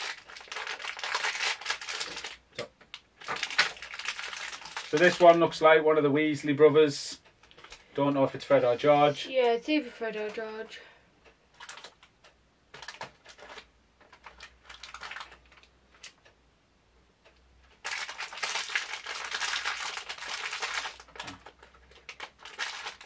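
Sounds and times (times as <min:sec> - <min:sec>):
plastic packaging crinkling: 0:00.0 - 0:05.5, 0:07.4 - 0:07.9, 0:11.6 - 0:12.1, 0:12.7 - 0:16.2, 0:17.8 - 0:23.0.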